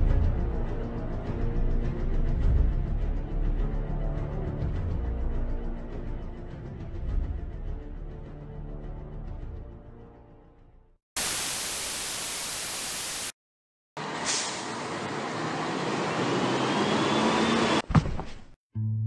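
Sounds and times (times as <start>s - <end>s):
static hiss: 11.2s - 13.4s.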